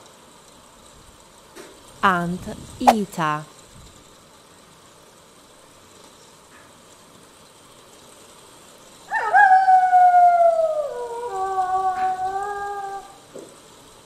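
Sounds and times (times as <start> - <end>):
wolves howling: 9.1 - 13.2.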